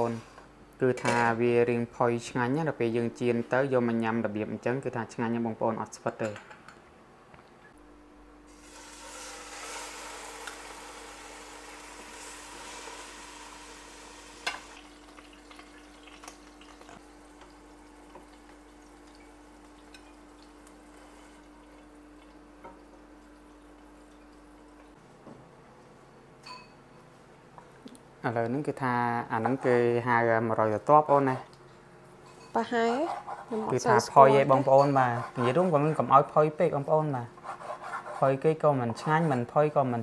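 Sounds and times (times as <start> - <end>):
steaks sizzling in frying pan: 8.5 - 17.0.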